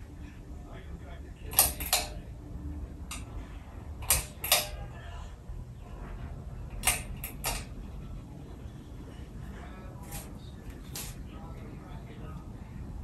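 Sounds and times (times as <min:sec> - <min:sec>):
ceiling fan humming: 0:00.0 - 0:13.0
fan housing creaking: 0:01.4 - 0:02.3, 0:03.1 - 0:05.0, 0:05.9 - 0:07.9.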